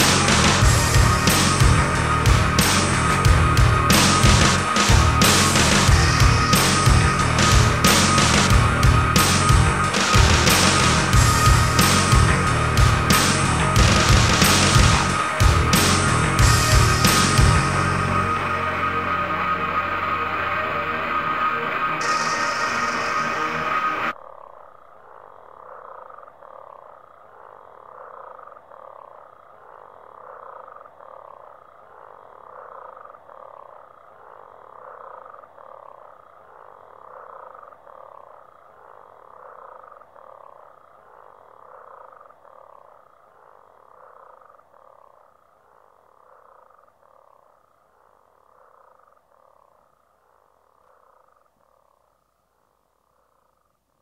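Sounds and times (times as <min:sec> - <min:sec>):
looped animal-like call: 0:00.0 - 0:24.1
industrial music: 0:00.0 - 0:24.2.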